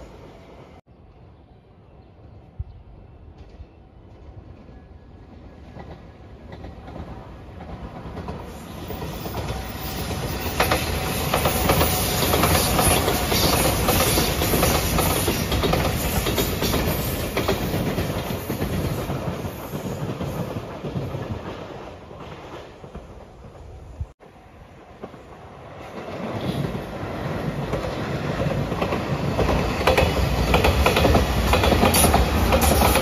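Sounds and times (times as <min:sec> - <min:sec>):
train passing rumble: 0:00.0 - 0:33.0
wheels clacking over rail joints: 0:26.0 - 0:33.0.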